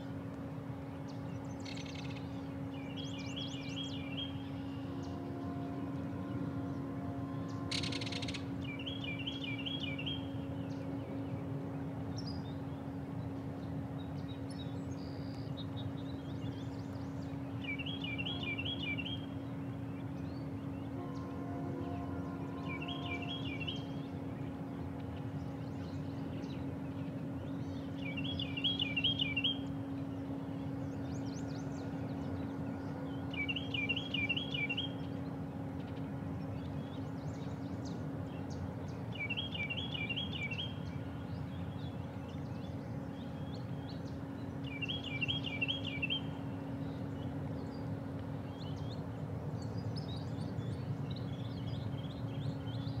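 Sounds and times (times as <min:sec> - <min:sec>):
steady low hum: 0:00.0 - 0:53.0
bird trilling: 0:07.5 - 0:09.9.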